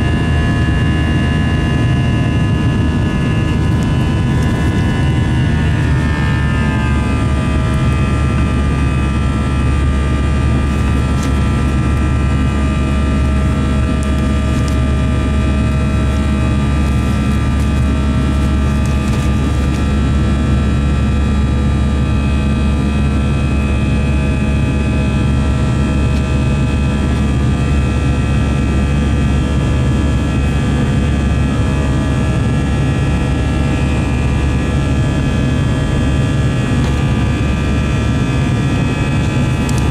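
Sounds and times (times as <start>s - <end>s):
jet engine rumble: 0.0s - 39.9s
jet engine whine: 0.0s - 39.9s.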